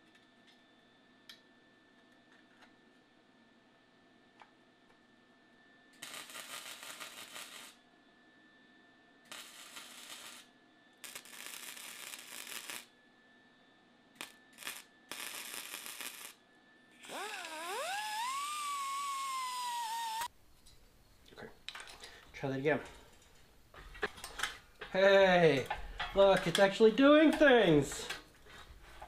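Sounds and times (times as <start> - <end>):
welder crackling hiss: 6.0 - 7.8, 9.3 - 12.9, 14.2 - 16.4, 17.0 - 20.3
die grinder whining: 17.0 - 20.3.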